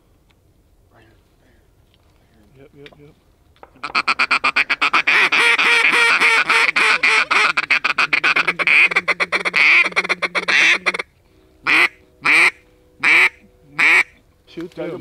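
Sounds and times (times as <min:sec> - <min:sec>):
duck call rattling chatter: 0:03.8 - 0:11.1, 0:11.7 - 0:14.2
duck call quacks: 0:03.8 - 0:14.2.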